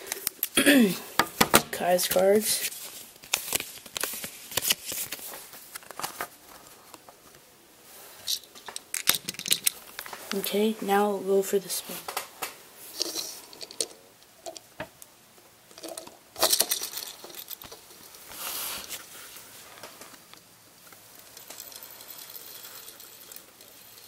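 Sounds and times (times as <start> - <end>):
spinning top whirring on table: 21.1 - 24.0.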